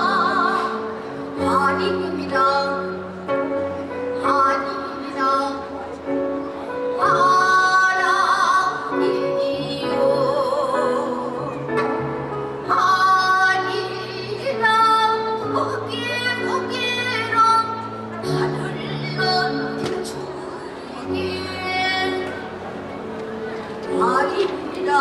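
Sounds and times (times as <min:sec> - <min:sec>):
woman singing with vibrato: 0:00.0 - 0:03.2, 0:04.1 - 0:05.8, 0:07.0 - 0:11.6, 0:12.6 - 0:22.5, 0:23.9 - 0:25.0.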